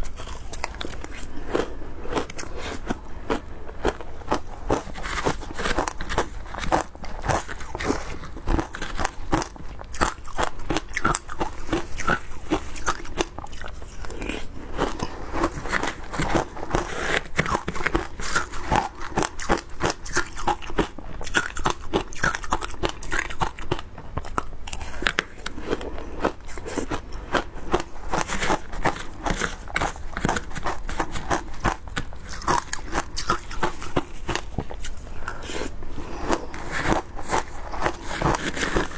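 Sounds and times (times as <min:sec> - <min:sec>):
crunching and chewing ice: 0:00.0 - 0:38.9.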